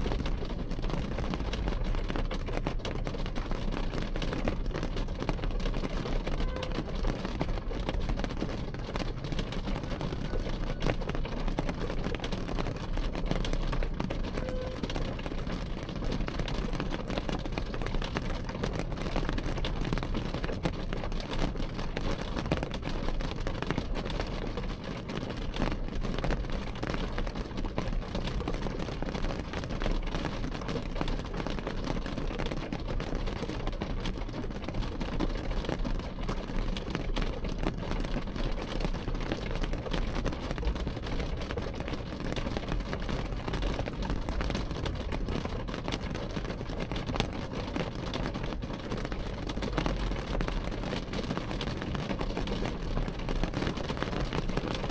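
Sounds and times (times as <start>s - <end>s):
rain on window glass: 0.0s - 54.9s.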